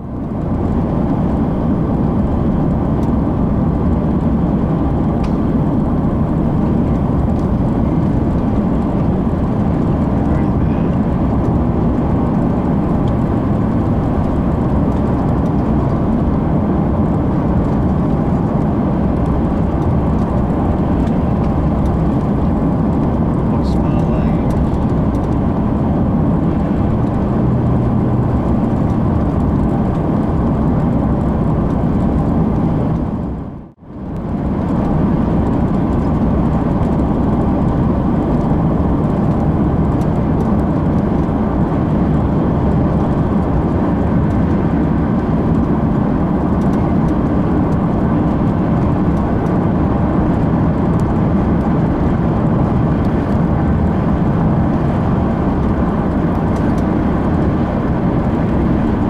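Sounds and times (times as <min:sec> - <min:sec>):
engine: 0:00.0 - 0:59.0
tyre road noise: 0:00.0 - 0:59.0
wind: 0:00.0 - 0:59.0.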